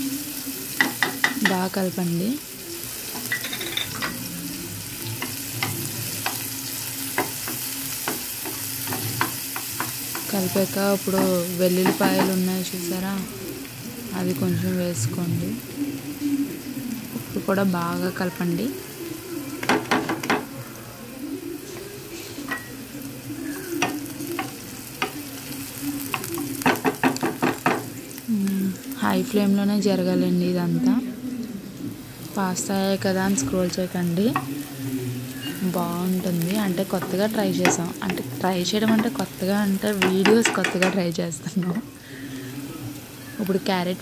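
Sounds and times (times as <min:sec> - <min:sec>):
onions sizzling in oil: 0:00.0 - 0:44.0
spatula scraping and tapping pan: 0:03.1 - 0:04.3, 0:05.0 - 0:10.4, 0:11.1 - 0:12.4, 0:23.7 - 0:25.4, 0:26.0 - 0:27.9, 0:36.2 - 0:41.8.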